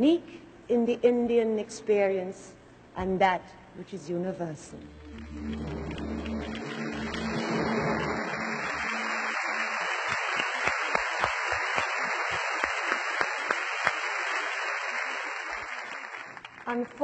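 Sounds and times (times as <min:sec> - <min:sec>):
large audience applauding: 0:04.9 - 0:16.8.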